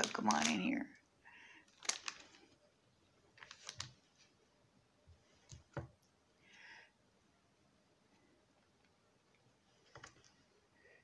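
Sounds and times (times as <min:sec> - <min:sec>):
paper stickers rustling: 0:00.0 - 0:00.8, 0:01.7 - 0:02.6, 0:03.4 - 0:04.4.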